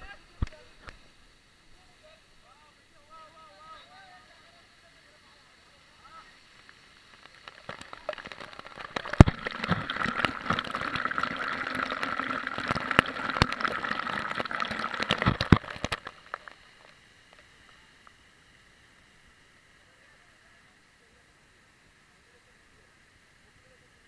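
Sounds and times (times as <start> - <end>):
water knocking on camera: 7.4 - 16.6.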